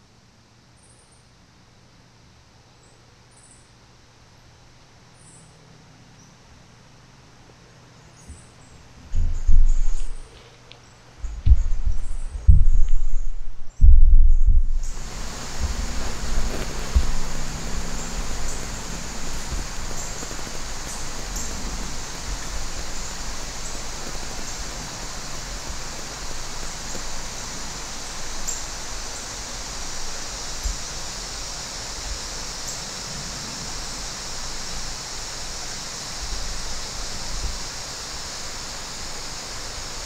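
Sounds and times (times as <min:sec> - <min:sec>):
woodland ambience hiss: 0:00.0 - 0:40.0
faint low bumps: 0:09.0 - 0:10.4, 0:11.2 - 0:28.4.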